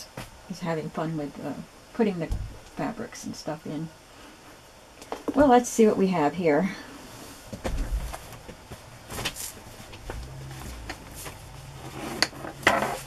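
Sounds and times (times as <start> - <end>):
fabric and cardboard rustling: 7.1 - 13.0.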